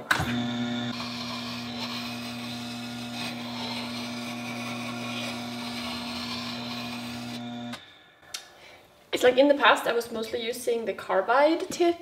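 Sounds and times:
sharpening machine motor hum: 0.1 - 7.9
steel grinding on stone: 0.7 - 7.8.

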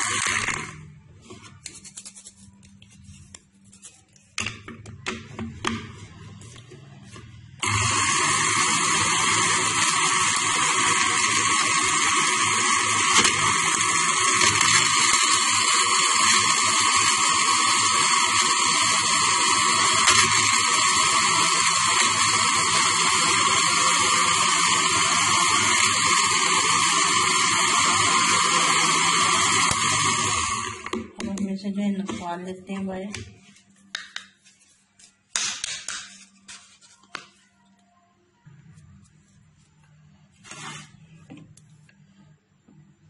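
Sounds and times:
mixer grinder whirring: 0.0 - 0.8, 6.4 - 31.4.

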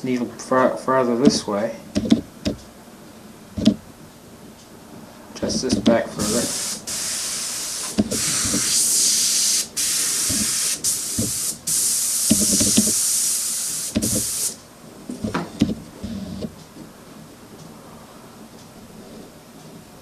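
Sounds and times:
handling knocks and clicks: 2.0 - 2.7, 5.4 - 6.0
airbrush hissing: 5.6 - 14.6.

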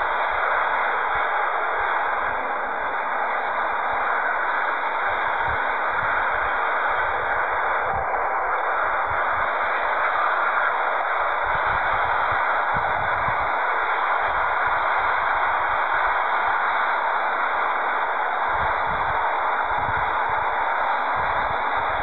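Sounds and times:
wind buffeting microphone: 18.5 - 20.5.

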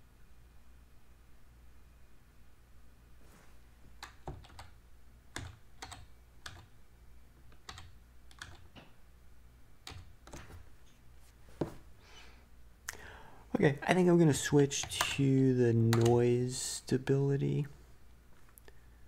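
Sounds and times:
steady low hum: 0.0 - 19.0
computer keyboard typing: 4.0 - 6.7, 7.6 - 8.8, 9.8 - 10.5, 14.8 - 15.2, 15.8 - 16.3.

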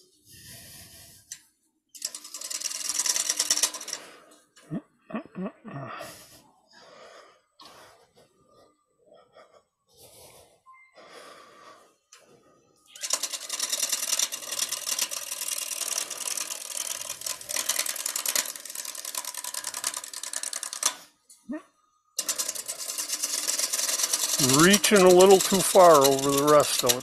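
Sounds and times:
gouge scraping wood on lathe: 22.2 - 27.0.

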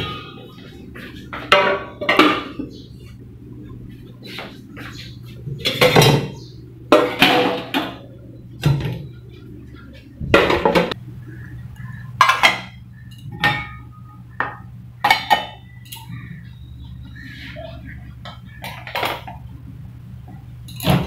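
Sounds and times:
steady low hum: 0.0 - 21.0
dishes clattering and clinking: 1.3 - 2.8, 5.6 - 9.2, 10.2 - 11.0, 12.2 - 16.2, 18.2 - 19.5, 20.6 - 21.0.

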